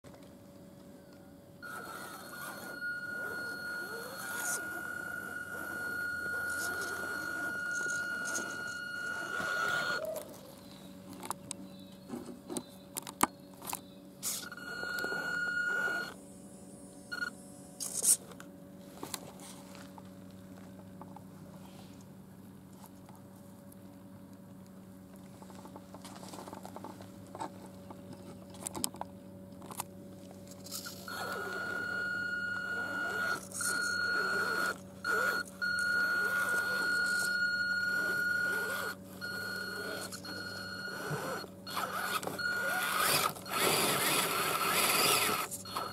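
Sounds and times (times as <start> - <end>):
rc car motor whine: 1.6 - 10.3, 13.6 - 16.5, 30.5 - 45.9
low grinding in dirt: 1.6 - 11.3, 30.1 - 45.9.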